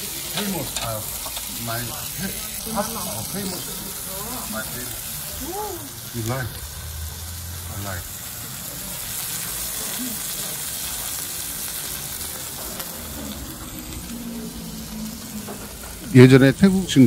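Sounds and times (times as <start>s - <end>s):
omelette sizzling on hot plate: 0.0s - 17.0s.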